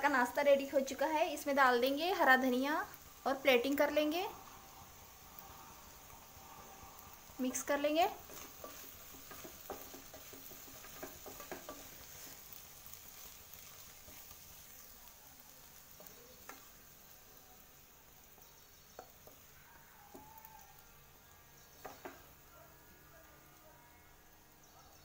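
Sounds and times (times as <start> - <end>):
faint sizzling in a pot: 0.0 - 25.0
wooden spoon scraping and tapping: 8.1 - 12.6, 15.9 - 16.8, 18.4 - 20.4, 21.8 - 22.4.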